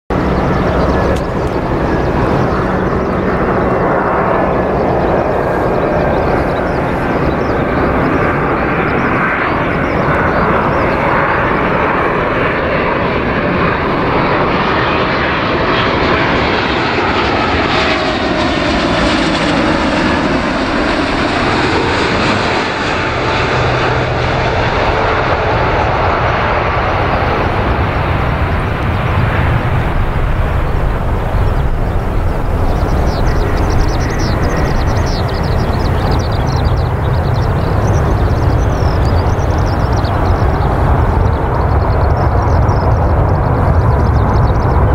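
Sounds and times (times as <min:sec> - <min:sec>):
jet airliner flying overhead: 0:00.1 - 0:44.9.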